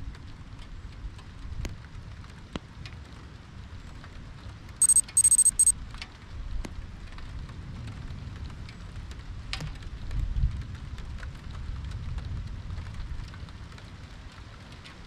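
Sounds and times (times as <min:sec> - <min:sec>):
steady rain: 0:00.0 - 0:04.8, 0:06.2 - 0:15.0
drop ticks: 0:04.8 - 0:05.7
high electronic beeping: 0:04.8 - 0:05.7
wind rumble on microphone: 0:07.3 - 0:15.0.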